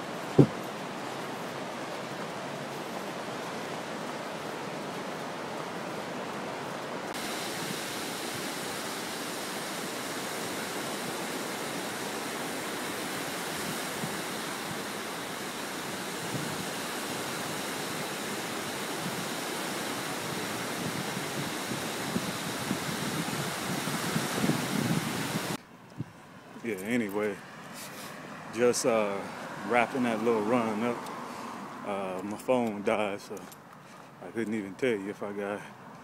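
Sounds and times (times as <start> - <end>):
surf breaking on a beach: 0.0 - 25.6.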